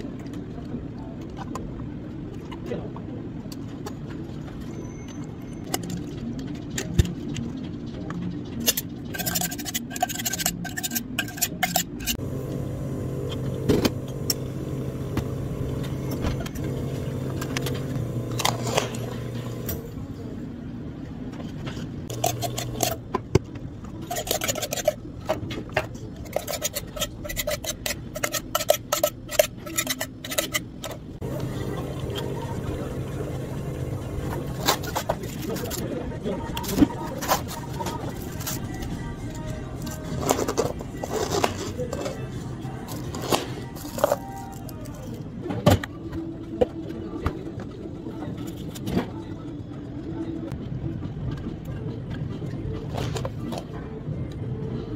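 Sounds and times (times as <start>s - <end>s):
electric machine hum: 12.1s - 20.0s, 22.1s - 23.0s, 31.2s - 35.8s.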